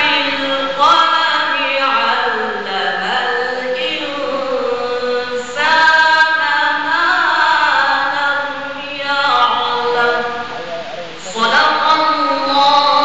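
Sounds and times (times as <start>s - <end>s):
man reciting in melismatic chant: 0.0s - 13.0s.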